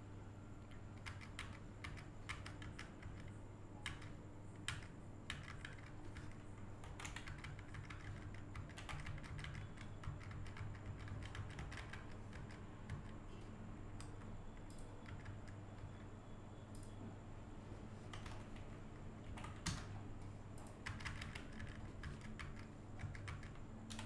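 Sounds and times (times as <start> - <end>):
keyboard keys clicking: 1.0 - 13.2, 20.6 - 24.0.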